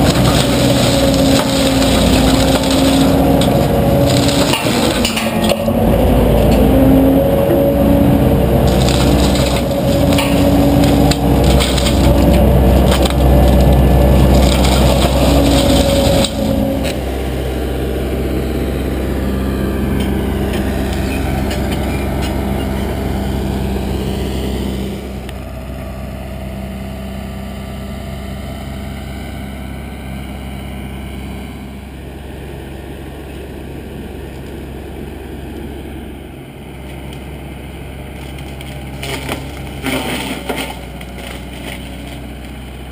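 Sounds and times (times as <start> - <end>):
mulcher grinding brush: 0.0 - 25.5, 36.7 - 42.9.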